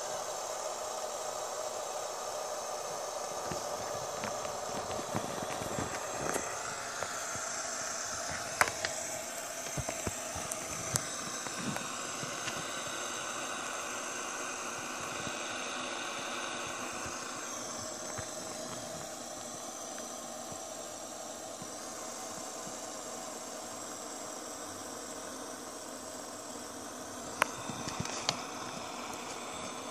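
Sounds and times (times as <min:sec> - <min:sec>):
fidget spinner whirring: 0:00.0 - 0:29.9.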